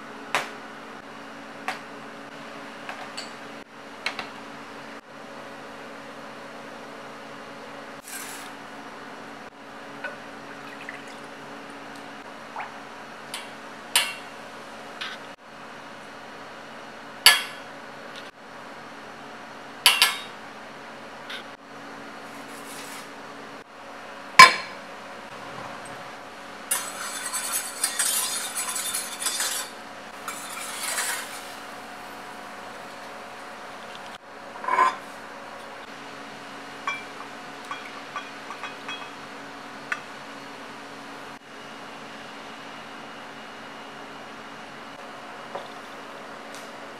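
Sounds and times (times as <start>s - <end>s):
utensils clinking against saucepan: 26.7s - 31.6s, 36.9s - 39.2s
whisk scraping in a pan: 26.7s - 31.9s.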